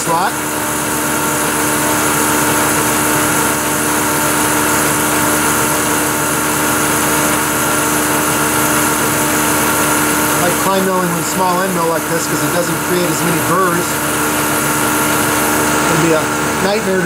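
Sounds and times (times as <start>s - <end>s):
milling machine hum: 0.0s - 17.0s.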